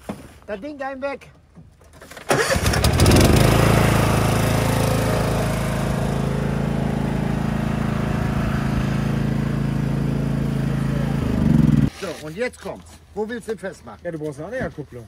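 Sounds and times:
lawn tractor engine idling: 0:02.3 - 0:11.9.

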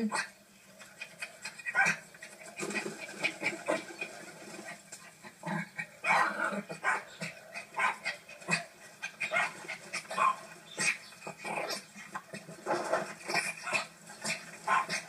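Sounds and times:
small dog barking and yipping: 0:01.5 - 0:02.1, 0:06.0 - 0:11.0, 0:13.5 - 0:15.0.

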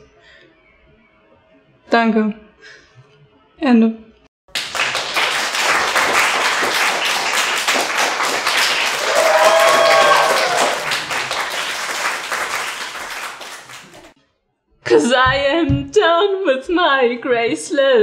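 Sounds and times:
audience applause: 0:04.5 - 0:14.1
audience cheering: 0:04.6 - 0:14.1.

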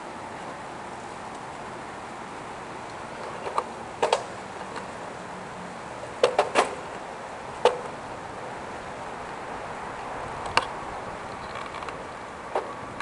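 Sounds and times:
wind and road noise: 0:00.0 - 0:13.0
sharp knocks and rattles: 0:06.2 - 0:06.8.

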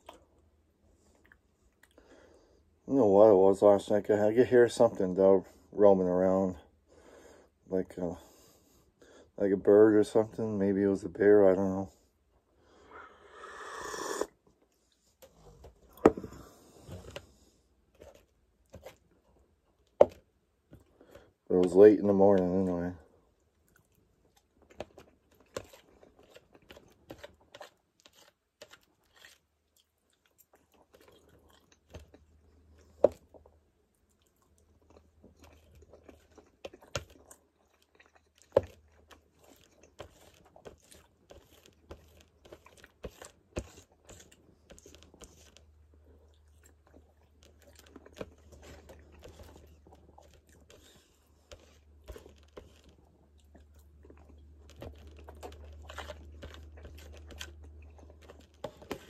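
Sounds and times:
chewing and biting food: 0:00.0 - 0:00.4, 0:01.0 - 0:02.1, 0:23.4 - 0:59.0.

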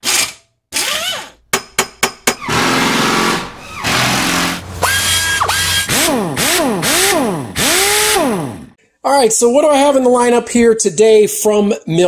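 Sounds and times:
power drill revving: 0:02.4 - 0:08.8.

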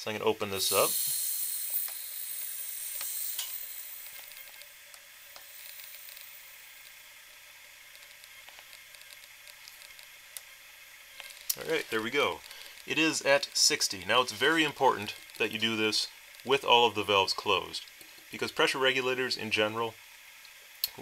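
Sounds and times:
compressed air hissing: 0:00.6 - 0:04.6, 0:05.2 - 0:10.1, 0:11.2 - 0:18.4.

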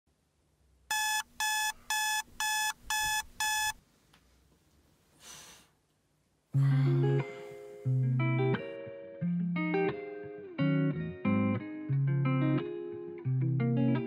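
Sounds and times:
electronic alarm beeping: 0:00.9 - 0:03.8.

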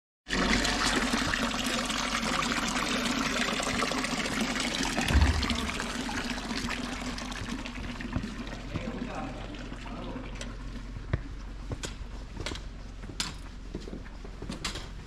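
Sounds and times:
low thump: 0:05.0 - 0:06.3.

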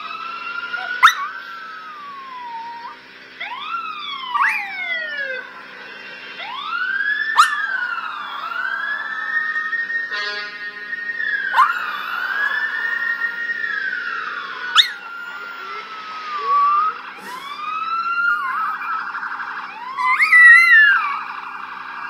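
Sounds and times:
police sirens wailing: 0:00.0 - 0:22.0
dog howling: 0:00.7 - 0:05.4, 0:07.4 - 0:08.0, 0:11.5 - 0:13.1, 0:14.7 - 0:17.6, 0:19.9 - 0:21.3.

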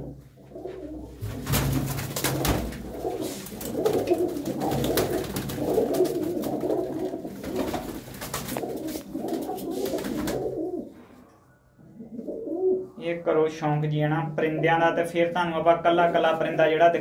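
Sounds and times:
pigeons cooing: 0:00.0 - 0:01.4, 0:02.3 - 0:11.1, 0:11.8 - 0:13.0.

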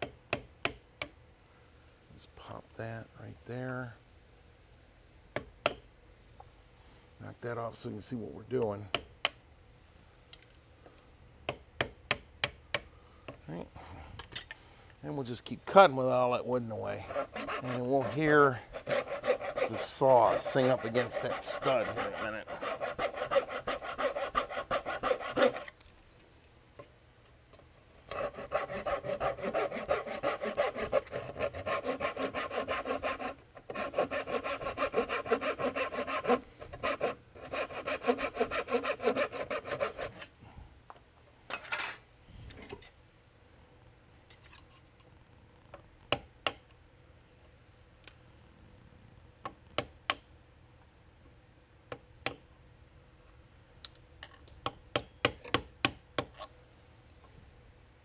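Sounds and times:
hand saw cutting wood: 0:17.0 - 0:25.8, 0:28.1 - 0:40.3.

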